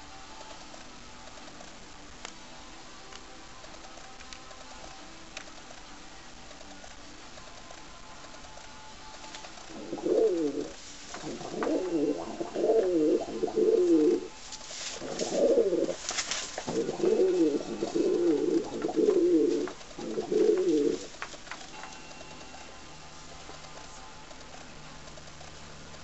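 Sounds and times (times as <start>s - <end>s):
pigeon cooing: 9.6s - 14.4s, 15.0s - 16.0s, 16.6s - 21.2s.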